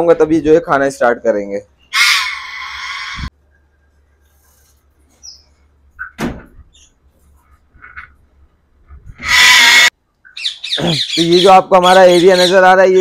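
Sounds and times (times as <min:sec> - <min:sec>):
parrot screech: 0:01.9 - 0:03.3, 0:09.2 - 0:09.9.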